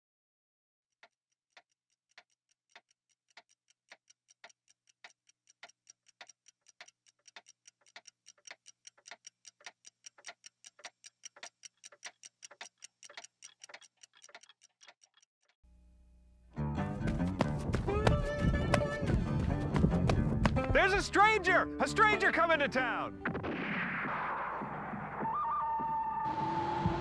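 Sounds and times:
faint ticking clicks: 0:01.0 - 0:15.3.

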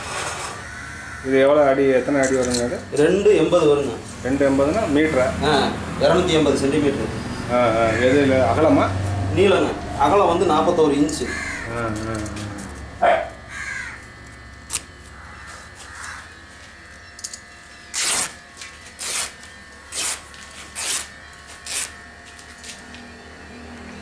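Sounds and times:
cloth ripping: 0:17.9 - 0:22.0.

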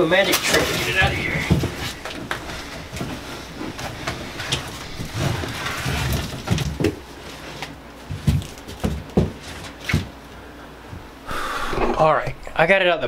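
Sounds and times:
cardboard scraping and rustling: 0:00.2 - 0:10.2.

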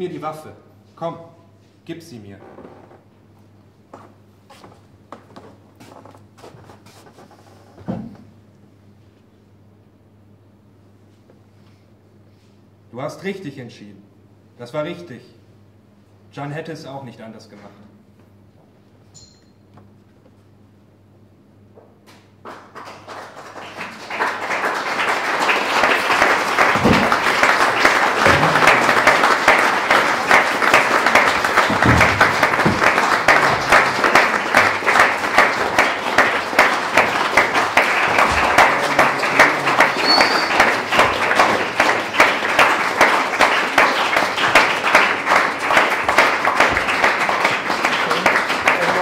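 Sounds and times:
audience applause: 0:22.4 - 0:49.0.

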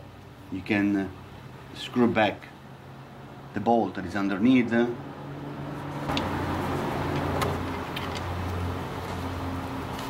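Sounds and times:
motor vehicle rumble: 0:04.9 - 0:10.0.

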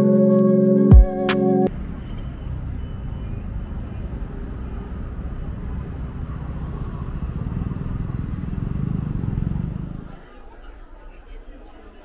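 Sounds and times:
faint voices of passers-by: 0:01.7 - 0:12.0
street traffic rumble: 0:01.7 - 0:12.0.

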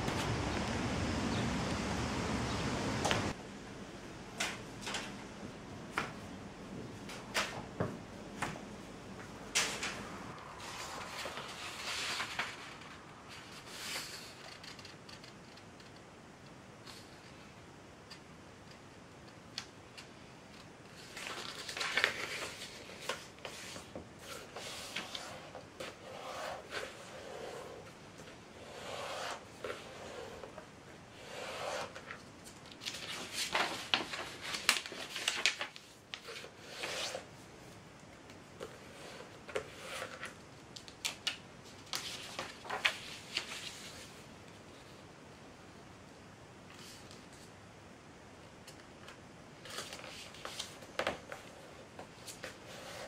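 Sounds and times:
paper rustling and crinkling: 0:09.5 - 0:15.6, 0:20.0 - 0:27.1, 0:31.7 - 0:37.3, 0:38.6 - 0:44.2, 0:49.1 - 0:53.0.

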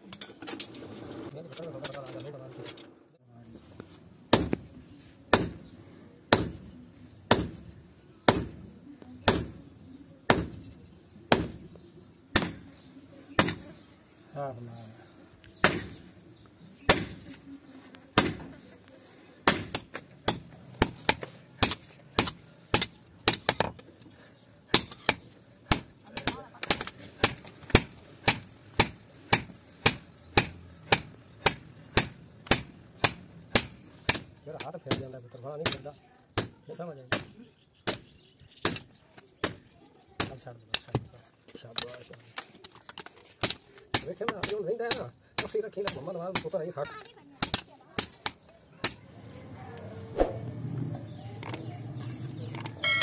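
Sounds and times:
hammer clanging on anvil: 0:06.4 - 0:11.8, 0:12.4 - 0:13.8, 0:15.6 - 0:16.3, 0:16.9 - 0:18.8, 0:19.5 - 0:23.8, 0:24.8 - 0:40.9, 0:43.4 - 0:49.1.

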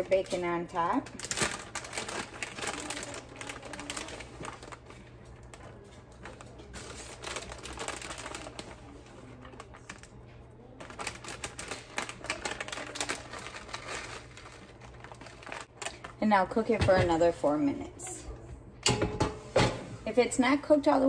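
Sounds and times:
plastic bag crinkling: 0:00.0 - 0:16.2.

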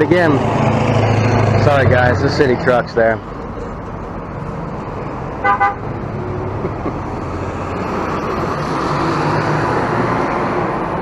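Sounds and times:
passing vehicles: 0:00.0 - 0:11.0
vehicle horn toot: 0:05.4 - 0:05.9.

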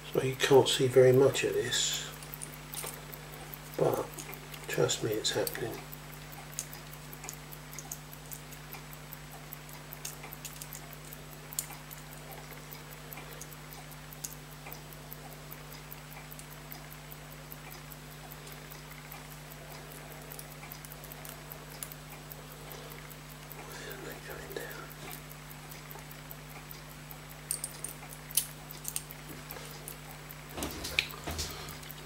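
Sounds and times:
low steady hum: 0:00.0 - 0:32.0
tweezers clicking and scraping: 0:09.9 - 0:12.0, 0:27.5 - 0:30.0.

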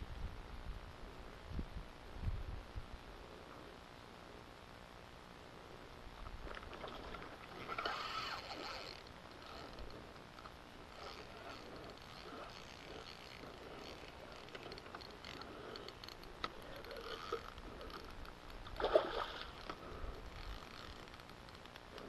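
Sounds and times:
water lapping: 0:06.5 - 0:10.1, 0:10.8 - 0:20.5
fish splashing: 0:18.6 - 0:20.2.

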